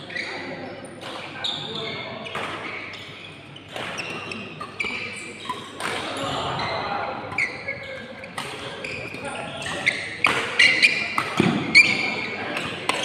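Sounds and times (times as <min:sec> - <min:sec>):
shoes squeaking on court floor: 0:00.0 - 0:13.0
racket hitting shuttlecock: 0:08.4 - 0:08.8, 0:10.1 - 0:13.0.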